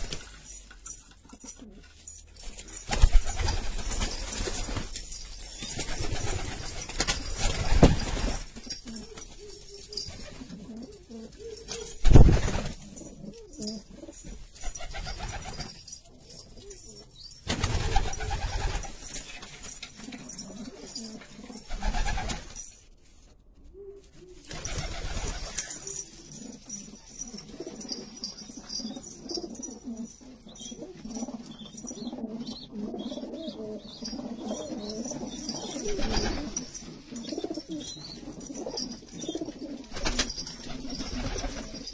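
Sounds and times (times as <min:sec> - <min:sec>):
wings flapping: 0:02.4 - 0:10.5, 0:11.6 - 0:12.8, 0:14.6 - 0:16.0, 0:17.4 - 0:21.0, 0:21.6 - 0:22.6, 0:24.4 - 0:26.0, 0:35.5 - 0:36.8, 0:39.8 - 0:41.9
pigeons cooing: 0:02.9 - 0:19.0, 0:19.6 - 0:22.4, 0:23.7 - 0:41.9.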